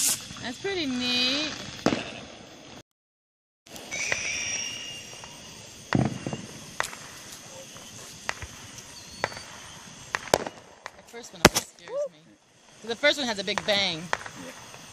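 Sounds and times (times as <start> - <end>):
firework bang: 0.0 - 2.7, 3.7 - 11.8, 13.0 - 14.9
firework cracks and pops: 0.0 - 2.8, 3.7 - 12.0, 12.8 - 14.9
firework whistle: 0.0 - 2.8, 3.7 - 12.2, 12.8 - 14.9.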